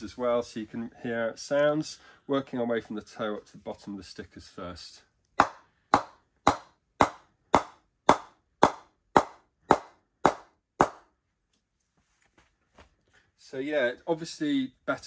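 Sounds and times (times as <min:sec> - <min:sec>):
wooden mallet knocking on bat: 0:05.4 - 0:11.0.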